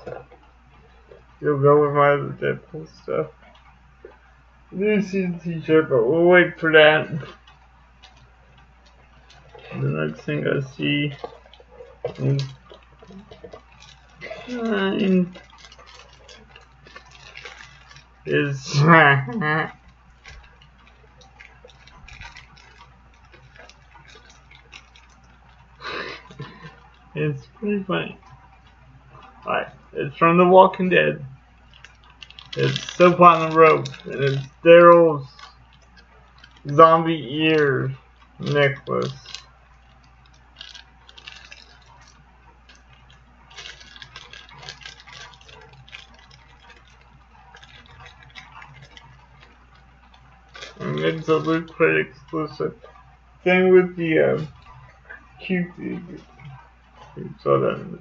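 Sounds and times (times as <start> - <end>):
low steady hum: 0.0 - 58.0
package crackling in hands: 7.1 - 27.2, 31.3 - 36.8, 37.6 - 53.4.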